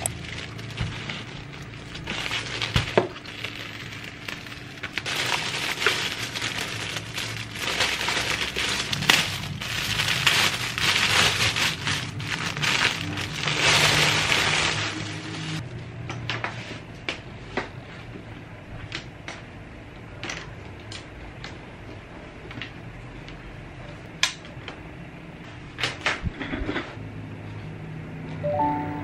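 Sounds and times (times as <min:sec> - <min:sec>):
plastic film crinkling: 0:00.0 - 0:15.6
plastic mailer tearing: 0:00.0 - 0:15.6.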